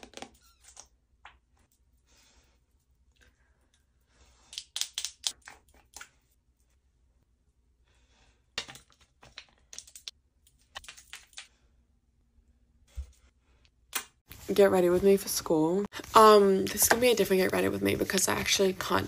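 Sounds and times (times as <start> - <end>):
hands clicking cosmetic containers: 4.5 - 6.1, 8.6 - 10.1, 10.7 - 11.5.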